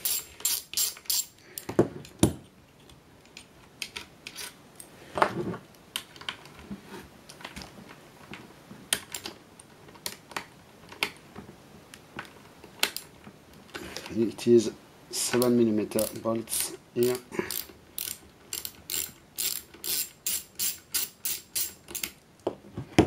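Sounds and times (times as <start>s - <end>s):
socket ratchet clicking: 0.0s - 1.7s, 17.0s - 22.2s.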